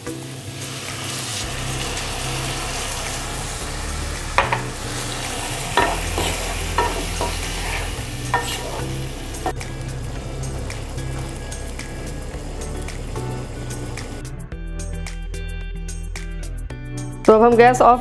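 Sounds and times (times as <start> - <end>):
food sizzling in a pan: 0.0 - 14.3
spatula knocking against pan: 4.4 - 4.7, 5.8 - 7.6, 8.3 - 8.8
wooden spatula stirring: 5.4 - 9.6.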